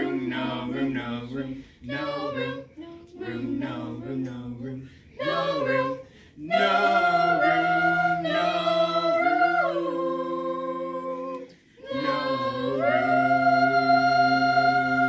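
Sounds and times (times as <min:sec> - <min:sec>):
choir singing sustained chords: 0:00.0 - 0:15.0.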